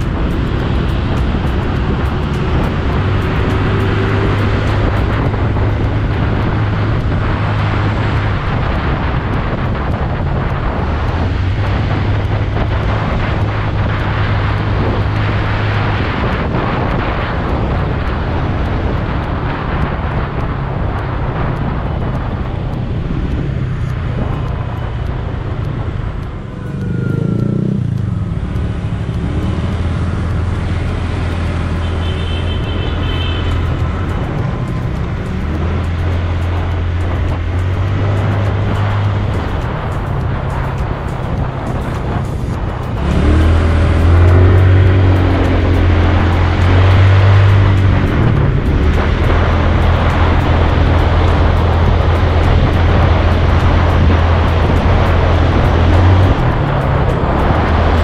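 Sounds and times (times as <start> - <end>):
scooter engine drone: 0.0 - 58.0
wind and road noise: 0.0 - 58.0.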